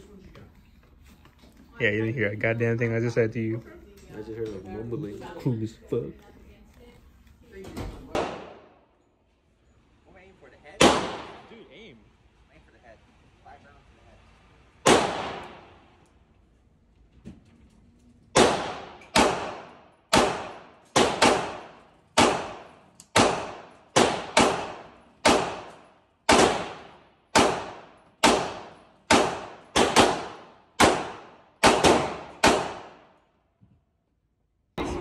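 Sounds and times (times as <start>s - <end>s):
pistol shots echoing indoors: 8.1s - 8.8s, 10.8s - 11.5s, 14.8s - 16.0s, 18.3s - 33.3s.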